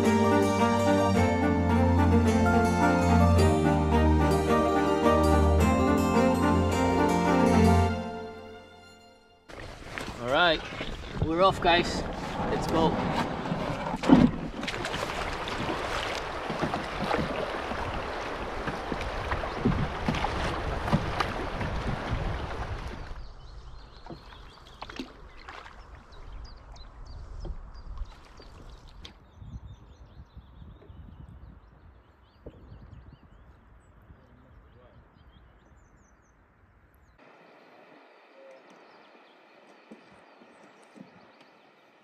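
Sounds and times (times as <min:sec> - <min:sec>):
paddle in water: 0:09.5 - 0:29.3, 0:37.2 - 0:42.0
wind buffeting microphone: 0:15.3 - 0:24.0, 0:25.8 - 0:36.2
faint high chirps: 0:37.4 - 0:40.2.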